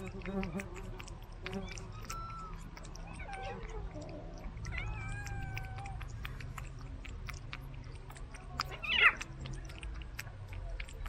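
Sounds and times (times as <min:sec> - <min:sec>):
cats chewing and lapping: 0:00.0 - 0:11.0
cat calling: 0:01.5 - 0:06.6
cat crying: 0:04.6 - 0:06.1.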